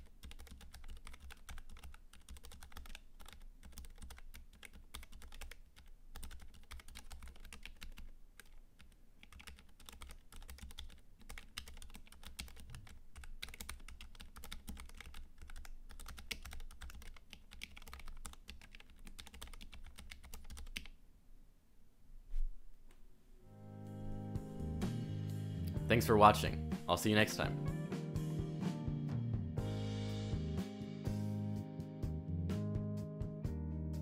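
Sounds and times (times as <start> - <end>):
fast keyboard typing: 0.0 - 20.9.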